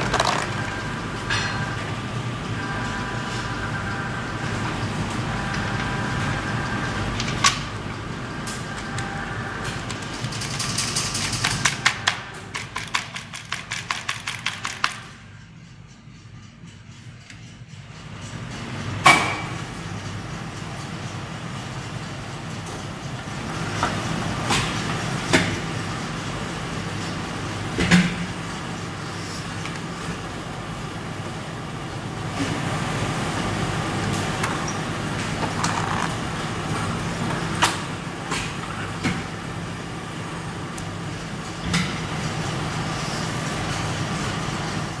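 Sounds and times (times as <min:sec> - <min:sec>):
press machine humming: 0:00.0 - 0:13.3.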